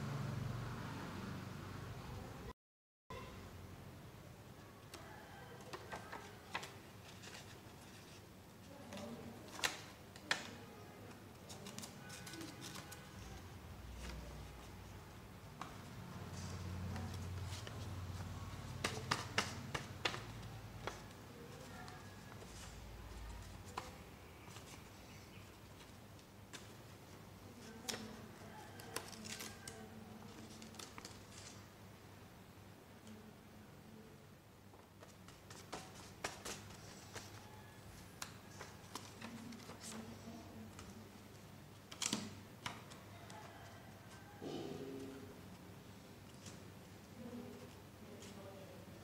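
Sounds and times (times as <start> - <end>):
paper crinkling and folding: 5.0 - 15.0, 15.7 - 31.7, 35.0 - 44.4.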